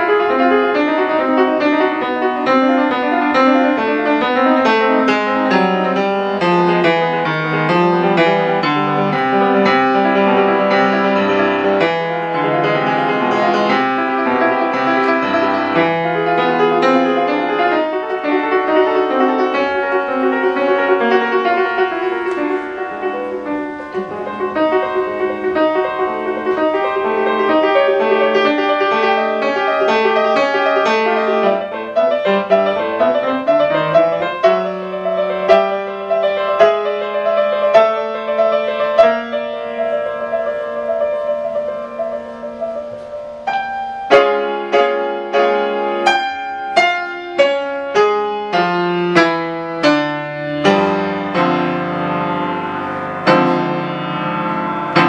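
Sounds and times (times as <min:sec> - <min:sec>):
solo piano playing: 0:00.0 - 0:55.0.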